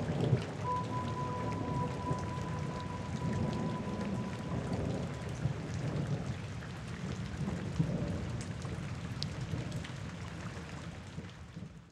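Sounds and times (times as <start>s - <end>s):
rolling thunder rumble: 0.0s - 8.9s
steady rain: 0.0s - 11.9s.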